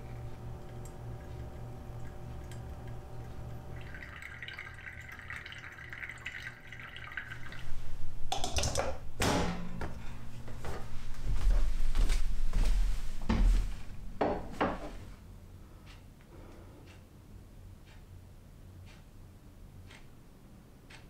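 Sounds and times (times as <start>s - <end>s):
water pouring onto coffee grounds: 0.0s - 7.9s.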